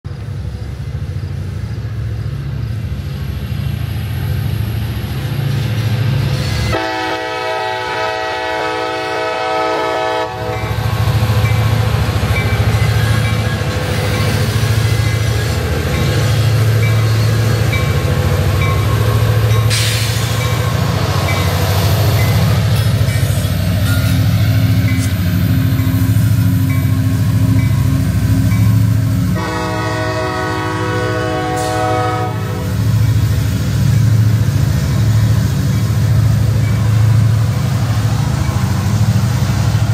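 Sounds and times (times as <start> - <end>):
locomotive engine rumble: 0.1 - 39.9
locomotive air horn: 6.6 - 10.8, 29.3 - 32.8.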